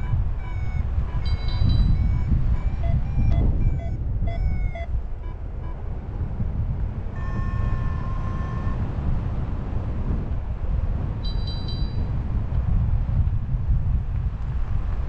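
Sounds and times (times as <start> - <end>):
variometer beeping: 0.0 - 5.8, 7.1 - 8.8, 11.2 - 12.1
wind over microphone: 0.0 - 15.0.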